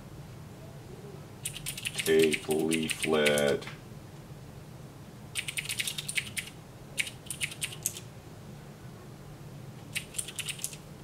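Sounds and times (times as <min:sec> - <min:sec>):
mechanical keyboard typing: 0:01.4 - 0:03.6, 0:05.4 - 0:08.0, 0:09.9 - 0:10.8.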